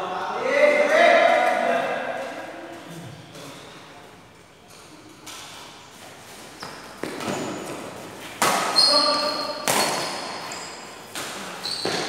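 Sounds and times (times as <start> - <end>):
shoes squeaking on court: 4.6 - 12.0
rackets striking shuttlecock: 6.6 - 12.0.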